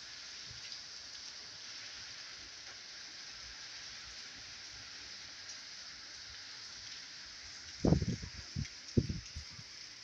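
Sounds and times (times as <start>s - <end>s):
steady rain hiss: 0.0s - 10.0s.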